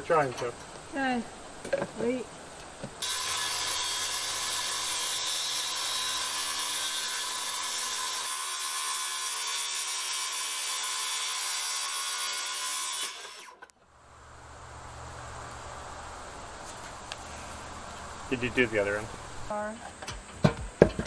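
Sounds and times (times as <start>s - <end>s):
circular saw cutting board: 3.0s - 13.7s.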